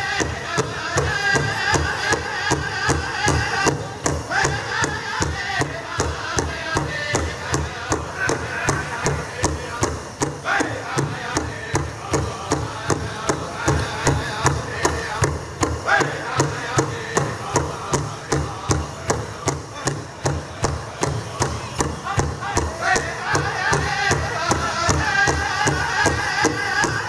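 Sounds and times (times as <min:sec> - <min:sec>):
high voices singing: 0:00.0 - 0:27.0
large hand drum steady beat: 0:00.0 - 0:27.0.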